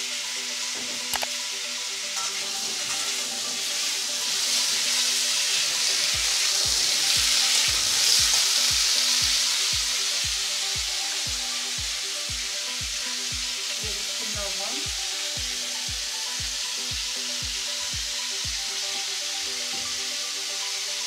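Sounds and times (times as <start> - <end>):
background music with low beat: 0.0 - 21.0
potatoes sizzling in hot oil: 0.0 - 21.0.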